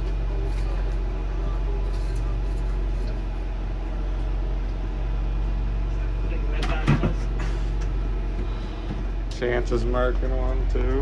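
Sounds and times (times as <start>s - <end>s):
engine idling hum: 0.0s - 11.0s.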